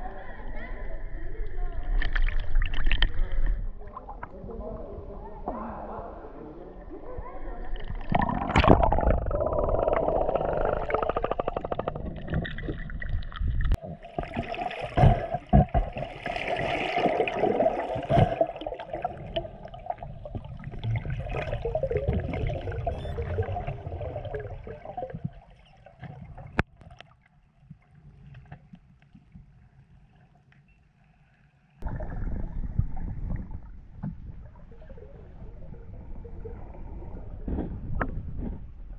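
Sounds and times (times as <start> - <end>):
water gurgling underwater: 2.0 - 26.7, 31.8 - 38.9.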